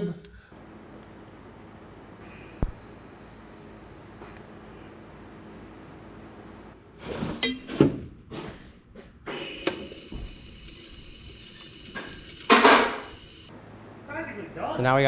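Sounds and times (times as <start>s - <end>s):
steady hiss: 2.2s - 4.4s.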